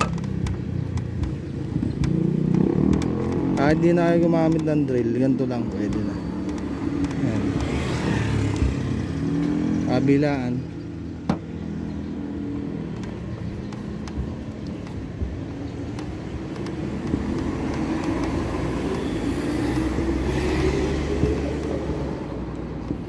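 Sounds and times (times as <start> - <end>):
light clicks: 0.1 - 7.8.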